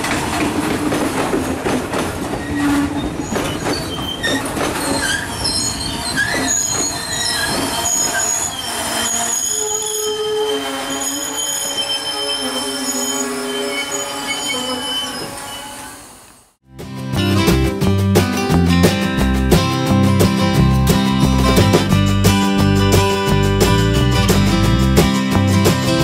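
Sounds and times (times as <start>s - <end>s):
train wheels clacking over rail joints: 0.0s - 9.0s
train brakes squealing: 2.4s - 16.5s.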